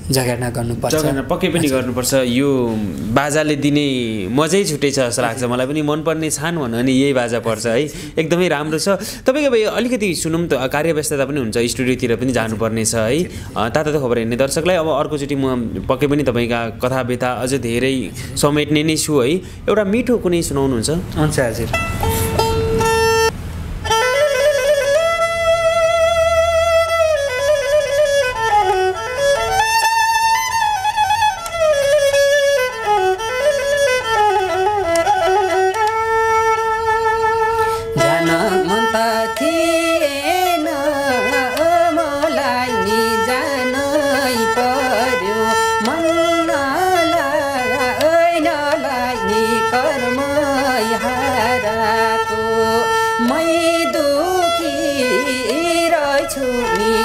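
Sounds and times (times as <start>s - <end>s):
bowed fiddle folk melody: 21.5s - 57.0s
man singing: 38.0s - 51.9s.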